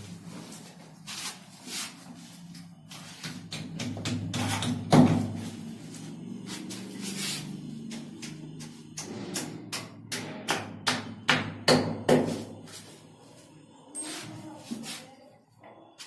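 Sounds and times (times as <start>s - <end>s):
hammer striking chisel on wall: 3.2s - 5.4s, 7.9s - 12.6s.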